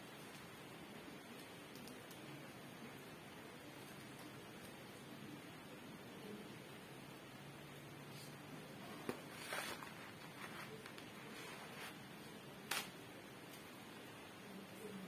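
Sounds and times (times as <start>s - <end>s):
low steady room hum: 0.0s - 15.0s.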